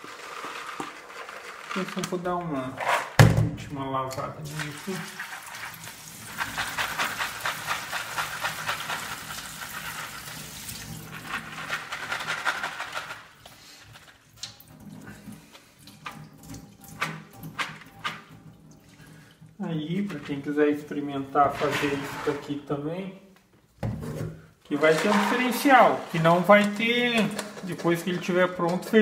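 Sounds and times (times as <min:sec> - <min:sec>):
wet beans shifting in colander: 0:00.0 - 0:03.2, 0:04.4 - 0:22.6, 0:24.7 - 0:29.0
tap water running onto beans: 0:04.1 - 0:12.0, 0:14.2 - 0:19.6.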